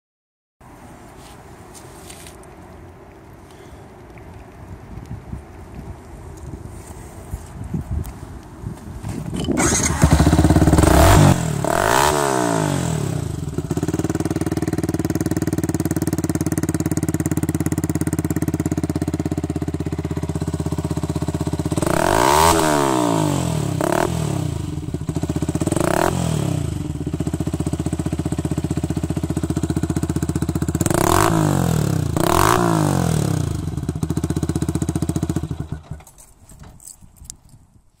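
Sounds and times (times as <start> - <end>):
motorcycle engine idling and revving: 9.2 - 36.3.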